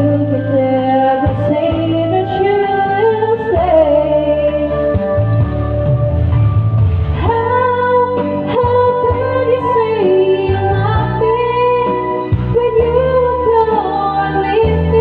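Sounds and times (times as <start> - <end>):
woman singing into microphone: 0.0 - 5.1, 7.2 - 15.0
backing track music: 0.0 - 15.0.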